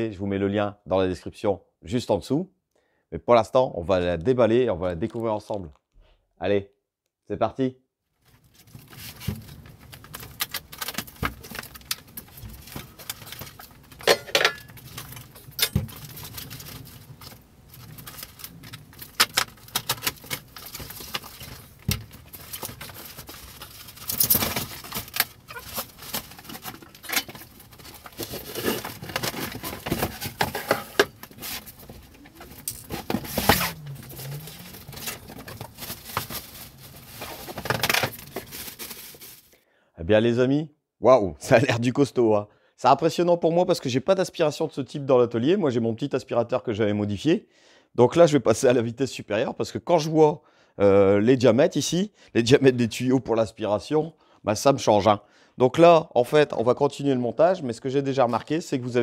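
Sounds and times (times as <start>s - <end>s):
cardboard and plastic rustling: 8.2s - 39.6s
parts knocking and clattering: 10.4s - 38.8s.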